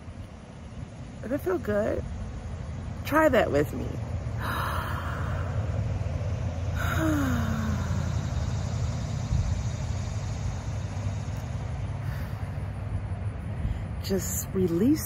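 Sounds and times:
low rumble: 0:00.0 - 0:14.9
woman sighing: 0:04.4 - 0:05.8, 0:06.8 - 0:08.2
woman breathing in deeply: 0:04.4 - 0:06.0, 0:06.7 - 0:08.6, 0:12.0 - 0:14.0.

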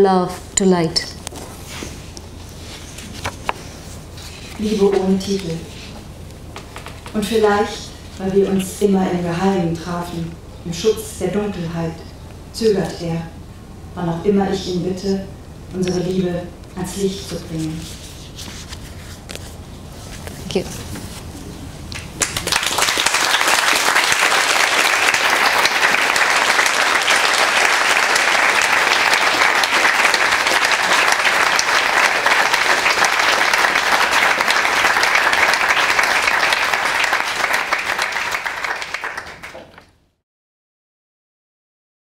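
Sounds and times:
audience applauding: 0:21.9 - 0:39.9.

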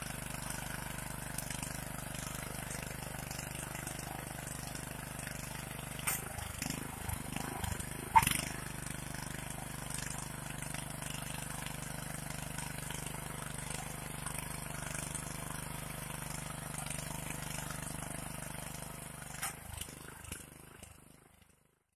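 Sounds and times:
tines cutting through soil: 0:05.7 - 0:09.4.

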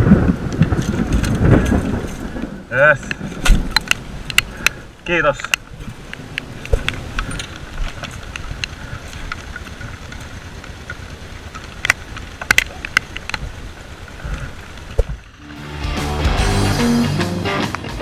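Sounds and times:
low steady rumble: 0:00.0 - 0:17.2.

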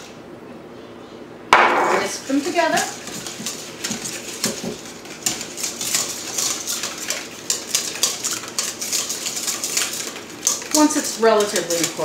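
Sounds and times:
whisk beating in metal bowl: 0:02.2 - 0:12.0.

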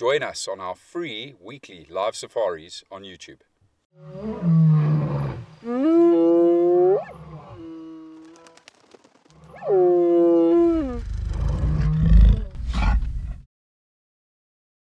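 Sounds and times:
long animal call sweeping upward: 0:04.0 - 0:08.6, 0:09.4 - 0:12.7
deep rumbling growl: 0:09.7 - 0:13.4.

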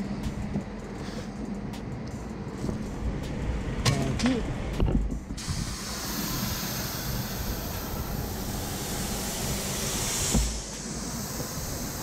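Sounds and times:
ventilation fans rushing: 0:00.0 - 0:12.0
spray gun hissing: 0:05.4 - 0:12.0
thump: 0:10.3 - 0:10.6.

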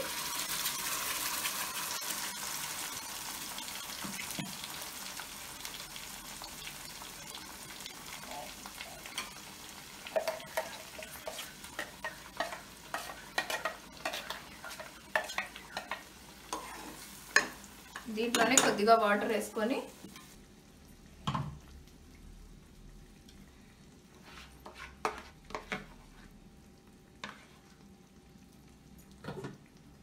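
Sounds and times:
paste sizzling in hot oil: 0:00.0 - 0:20.4.

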